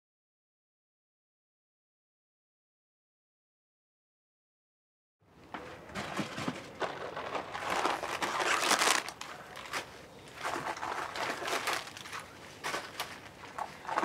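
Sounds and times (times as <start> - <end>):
rustling crinkling noise: 5.4 - 14.0.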